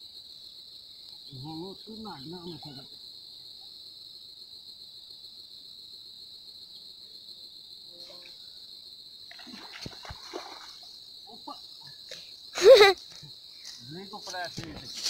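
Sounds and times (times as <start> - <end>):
insect chirring: 0.0 - 15.0
river water splashing: 9.3 - 11.0.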